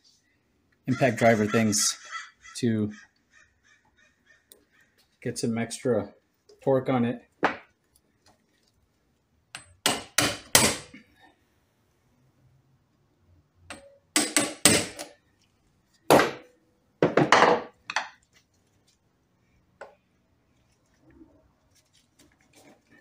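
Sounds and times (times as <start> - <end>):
hammer striking impact driver: 13.7 - 15.1.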